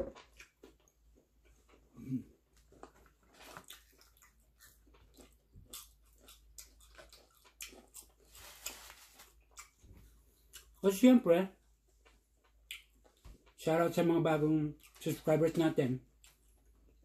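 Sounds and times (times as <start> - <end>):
crunching crispy food: 2.6 - 9.8.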